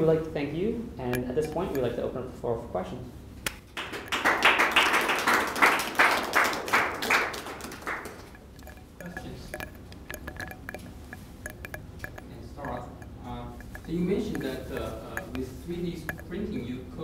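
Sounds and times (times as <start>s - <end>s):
audience applauding: 3.8s - 8.3s.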